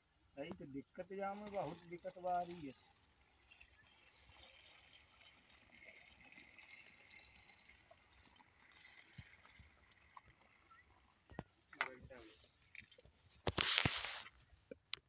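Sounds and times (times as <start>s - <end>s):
faint outdoor hiss: 0.0s - 15.0s.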